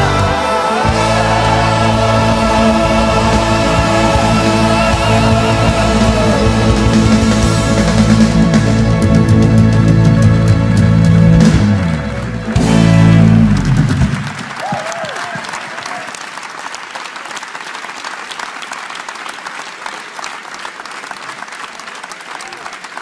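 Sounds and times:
band playing final chord: 0.0 - 14.3
audience applause: 0.0 - 23.0.

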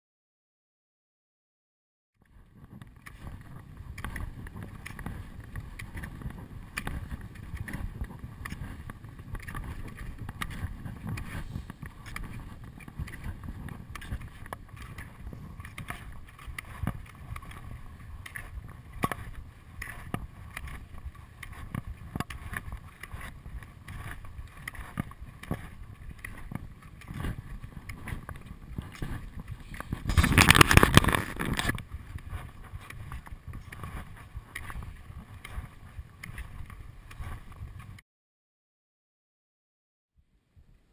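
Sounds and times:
skis and poles clicking and scraping: 2.2 - 38.0
wind rushing over microphone: 20.2 - 38.0.

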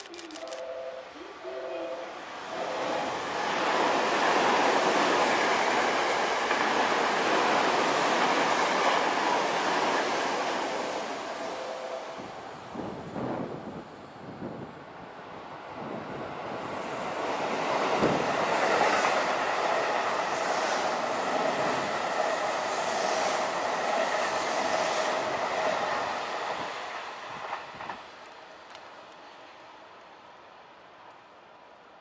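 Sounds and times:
train passing: 0.1 - 32.0
train wheels clickety-clack: 3.4 - 10.9, 16.8 - 28.1.

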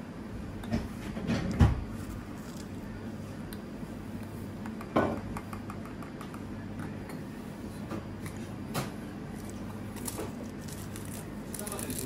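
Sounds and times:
steady low hum: 0.0 - 12.0
pastry shell crunching: 9.3 - 12.0.

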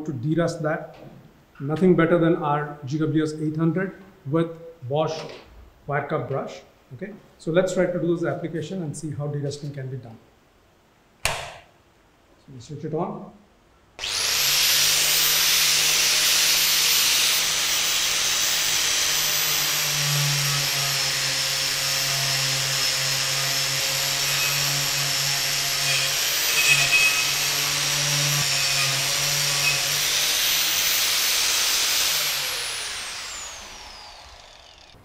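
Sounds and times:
angle grinder whining: 14.0 - 35.0.

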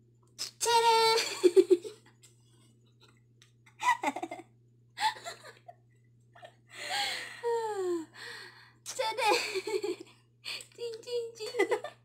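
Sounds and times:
faint low hum: 0.0 - 12.0
women laughing and giggling: 1.2 - 2.0, 3.8 - 4.4, 5.0 - 6.6, 9.2 - 10.1, 11.4 - 12.0.

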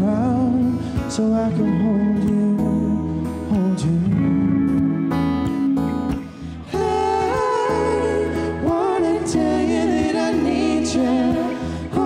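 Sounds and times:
strummed acoustic guitar: 0.0 - 12.0
man and woman singing in harmony: 6.6 - 12.0.

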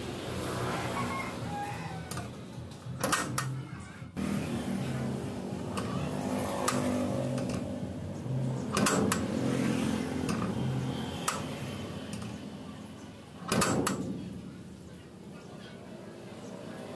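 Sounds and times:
metal latch clacking: 2.9 - 3.6, 8.7 - 9.3, 13.4 - 14.5
bolt snapping shut: 8.7 - 9.3, 13.5 - 14.2.

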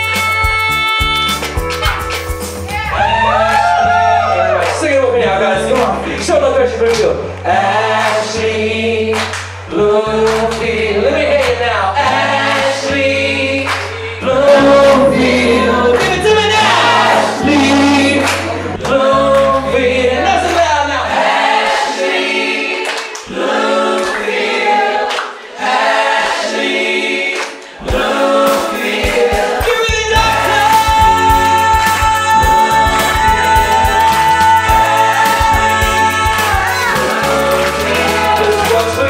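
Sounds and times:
musical accompaniment: 0.0 - 11.0, 12.0 - 39.0
person singing into a microphone: 14.2 - 21.0, 27.9 - 39.0.

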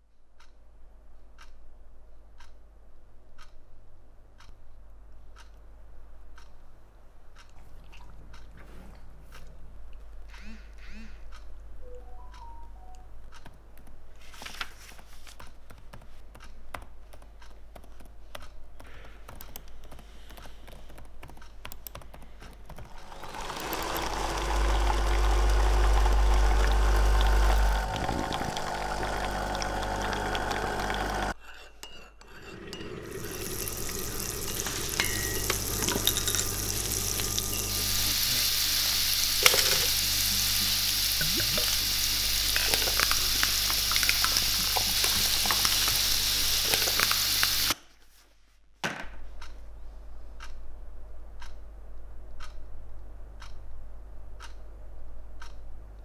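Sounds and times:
paper pages riffling: 14.2 - 15.5
liquid pouring into ceramic mug: 32.8 - 38.0
fizzing beer foam: 33.0 - 47.8.

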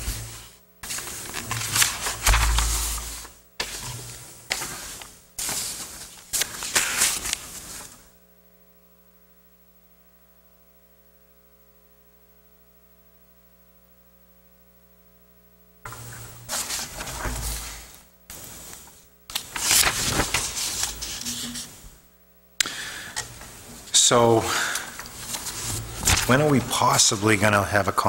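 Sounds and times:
paper rustling and shuffling: 0.0 - 8.1, 15.9 - 22.0, 22.8 - 28.0
faint steady hum: 0.0 - 28.0.

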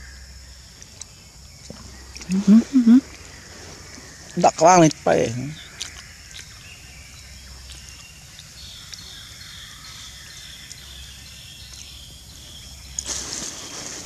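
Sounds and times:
insects calling: 0.0 - 14.0.

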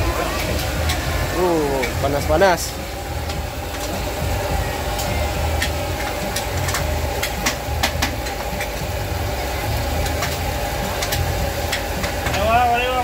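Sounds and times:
low engine-like drone: 0.0 - 13.0
oil popping and crackling: 0.0 - 13.0.

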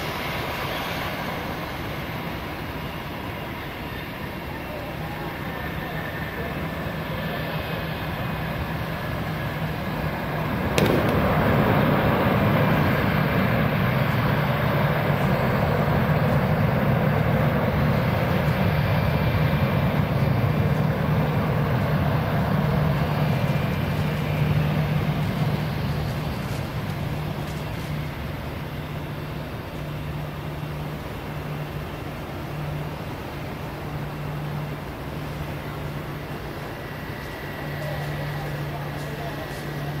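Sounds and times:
jet engines rumbling: 0.0 - 40.0.

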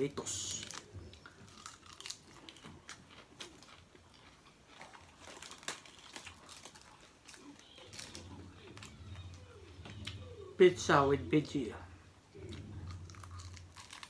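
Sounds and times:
lettuce leaves tearing: 0.2 - 3.7, 4.8 - 9.6, 12.4 - 14.0
chewing lettuce: 0.2 - 10.5, 12.3 - 14.0.

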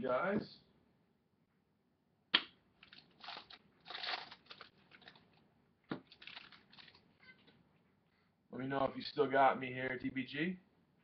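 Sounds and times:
foil wrapper tearing and crinkling: 2.8 - 5.3, 6.0 - 7.0.

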